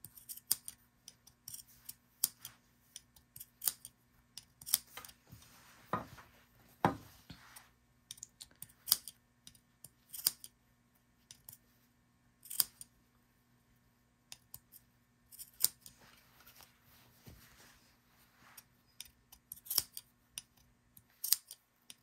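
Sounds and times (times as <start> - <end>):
scissors snipping fabric: 0.0 - 5.2, 8.6 - 10.6, 12.4 - 12.9, 14.3 - 16.0, 19.0 - 22.0.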